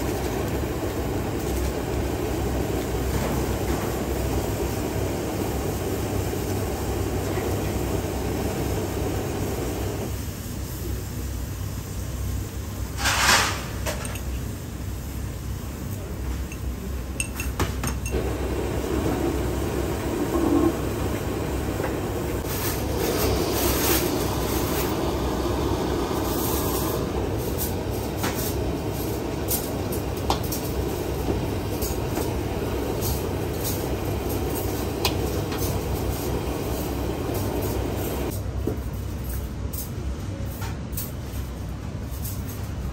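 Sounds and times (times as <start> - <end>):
gas burner flame: 0.0 - 42.9
oil bubbling: 18.0 - 38.3.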